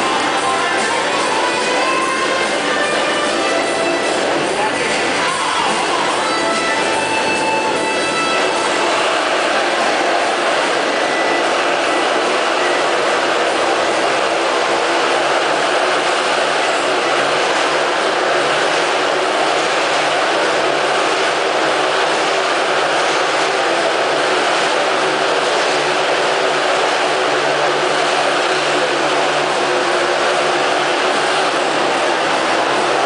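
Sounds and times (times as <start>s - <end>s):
motocross bike engines: 0.0s - 33.0s.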